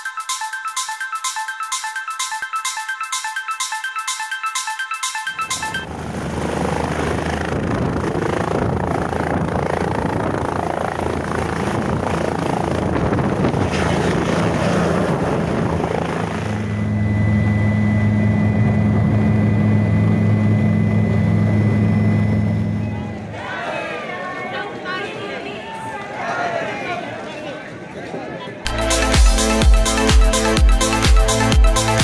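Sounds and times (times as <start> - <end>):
helicopter rotor and turbine: 5.3 - 23.3.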